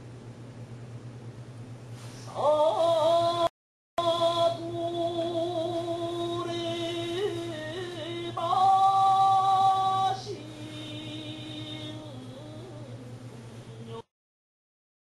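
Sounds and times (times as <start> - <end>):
person singing long held notes: 2.3 - 13.2.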